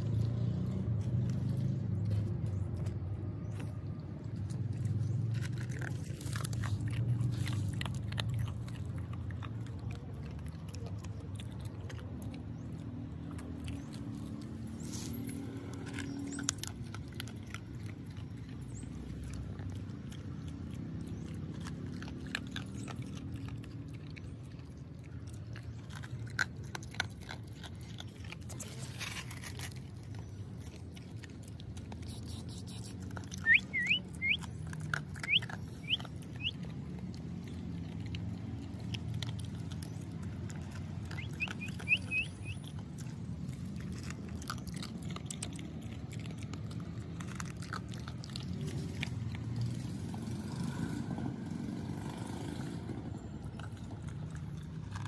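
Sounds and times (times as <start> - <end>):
dog crunching dry kibble: 0.0 - 55.0
short high chirps: 33.4 - 34.4, 41.2 - 42.6.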